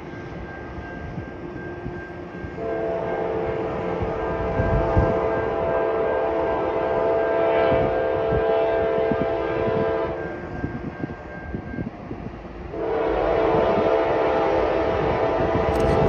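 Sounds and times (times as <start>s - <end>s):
low rumble of train: 0.0s - 16.0s
locomotive air horn blasts: 2.6s - 10.3s, 12.7s - 16.0s.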